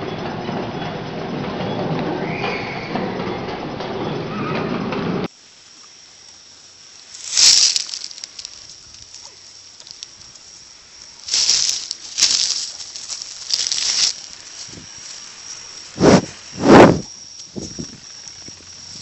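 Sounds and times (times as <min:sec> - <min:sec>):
low steady hiss: 0:05.3 - 0:19.0.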